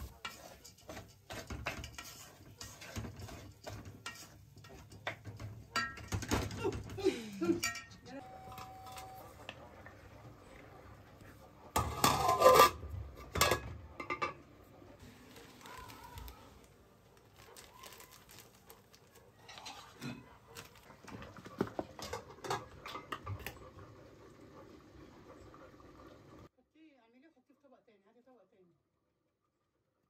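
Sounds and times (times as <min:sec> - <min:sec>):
utensil scraping metal pot: 0:00.0 - 0:06.4, 0:11.3 - 0:14.4, 0:19.3 - 0:23.6
kitchen items rustling and clicking: 0:00.0 - 0:23.9.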